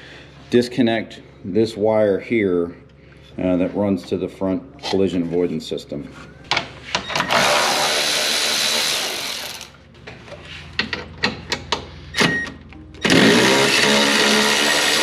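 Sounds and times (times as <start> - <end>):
electric ratchet motor running: 7.3 - 9.8, 13.0 - 15.0.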